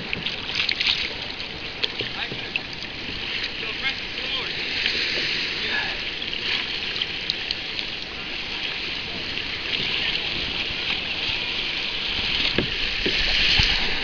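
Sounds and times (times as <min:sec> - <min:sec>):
small splashes: 0:00.0 - 0:03.7
water lapping and trickling: 0:00.0 - 0:14.0.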